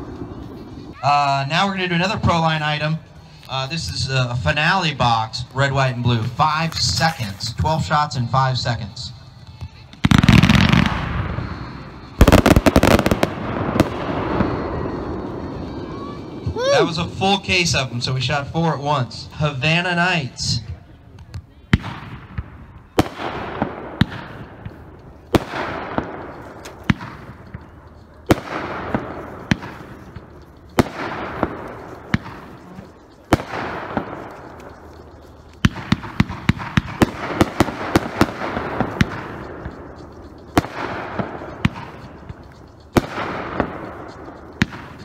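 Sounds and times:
firework bangs: 10.0 - 18.4, 21.7 - 45.0.

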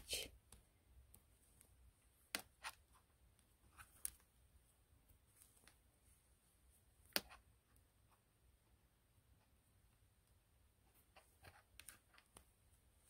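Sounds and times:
wooden knitting needles clicking: 11.1 - 12.5.

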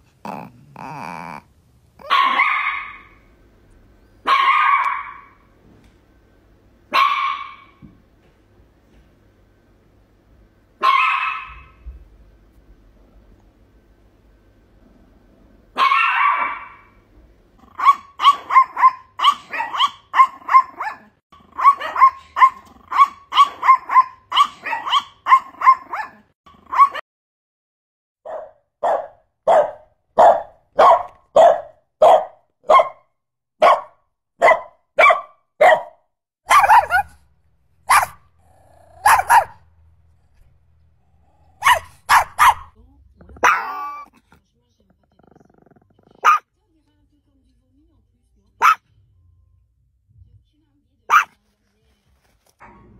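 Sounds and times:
small dog barking: 2.0 - 3.2, 4.2 - 5.5, 6.9 - 7.8, 10.8 - 11.9, 15.7 - 16.9, 17.6 - 27.0, 28.3 - 33.0, 33.6 - 37.2, 37.8 - 40.4, 41.4 - 42.8, 43.4 - 44.4, 46.0 - 46.5, 48.6 - 48.9, 51.1 - 51.4.

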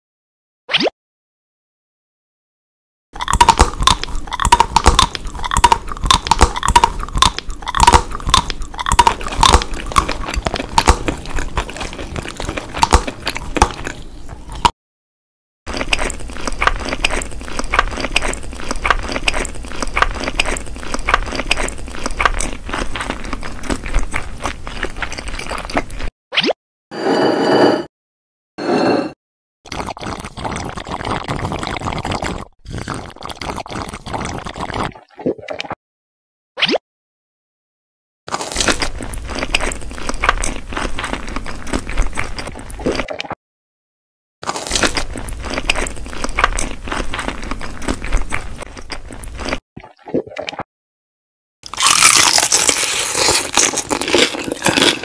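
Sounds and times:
crunchy biting and chewing: 3.2 - 14.7, 15.7 - 26.1, 29.7 - 34.9, 38.3 - 43.3, 44.4 - 49.6, 51.6 - 55.0.

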